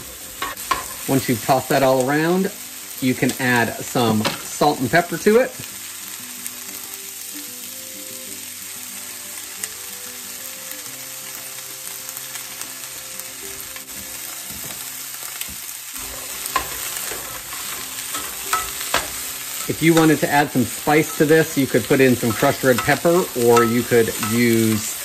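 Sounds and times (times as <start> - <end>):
vegetables sizzling in a skillet: 0.0 - 25.0
tongs clicking: 16.2 - 20.3.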